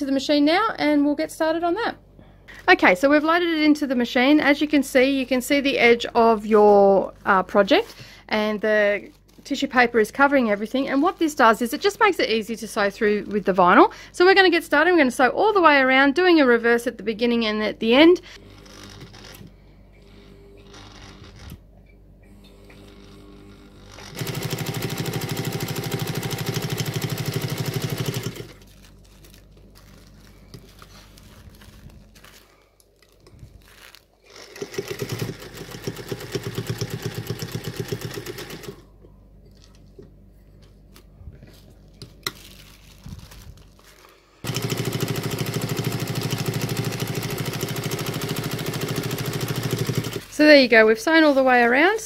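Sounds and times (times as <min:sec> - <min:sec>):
sewing machine running: 0:18.4 - 0:21.6, 0:22.7 - 0:28.7, 0:34.2 - 0:38.9, 0:44.4 - 0:50.4.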